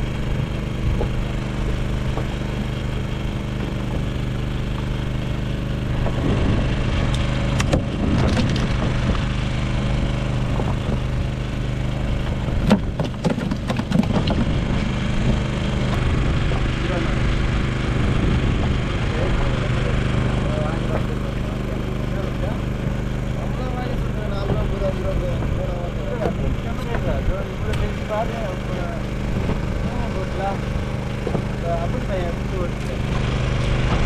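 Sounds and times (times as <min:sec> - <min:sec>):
boat engine hum: 0:00.0 - 0:34.0
fish thrashing on wooden deck: 0:12.5 - 0:15.4.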